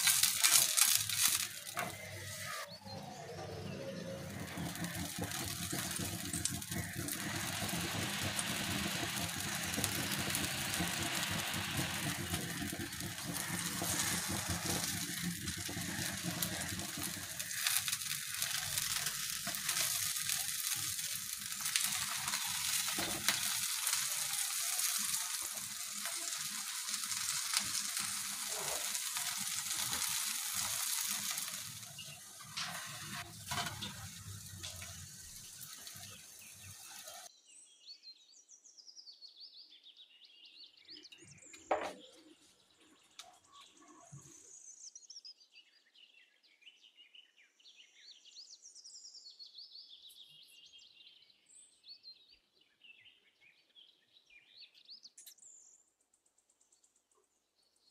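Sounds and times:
flatbread sizzling in hot oil: 0.0s - 37.3s.

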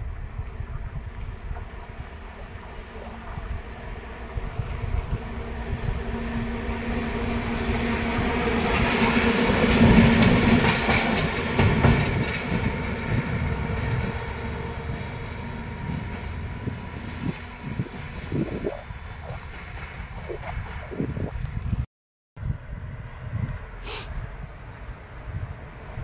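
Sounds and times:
diesel locomotive engine drone: 0.0s - 21.8s, 22.4s - 26.0s
wheels clattering over rail joints: 8.4s - 20.7s.

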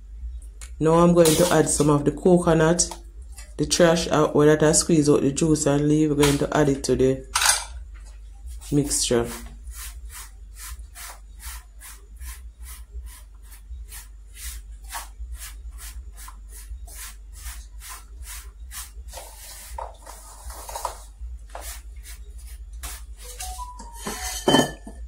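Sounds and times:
steady low hum: 0.0s - 25.0s
wooden spoon scraping metal bowl: 8.6s - 24.9s.

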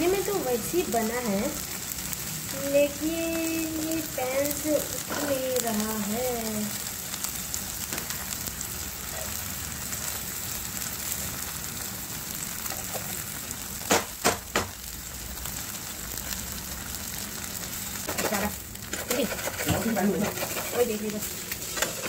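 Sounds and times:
eggs sizzling in a frying pan: 0.0s - 22.0s
spatula scraping a pan: 18.0s - 22.0s.

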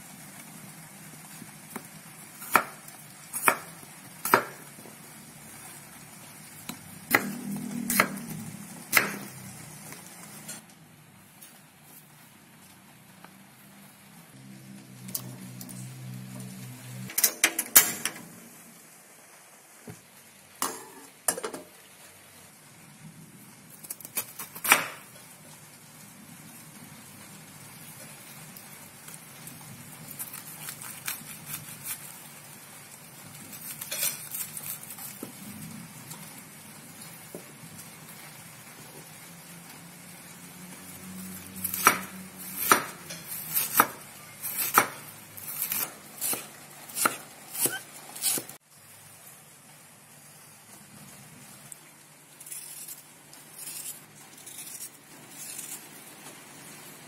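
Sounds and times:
knife chopping cabbage on board: 1.7s - 4.7s, 6.7s - 8.3s, 8.9s - 9.3s, 24.1s - 25.0s, 41.6s - 48.6s.

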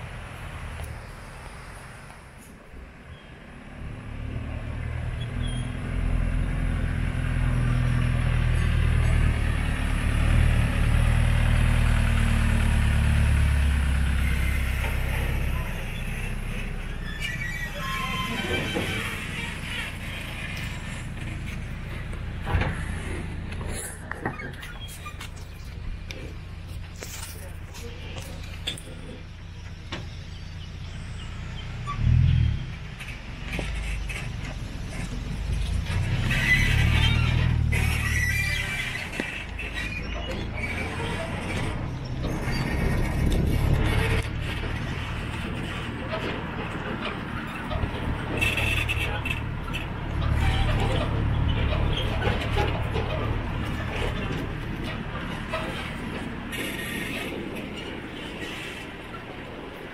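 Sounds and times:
road train engine humming: 0.0s - 59.9s.

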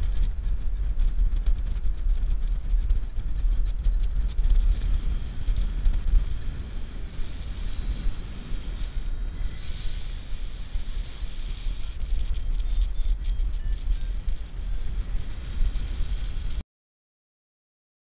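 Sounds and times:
wind buffeting microphone: 0.0s - 16.6s.

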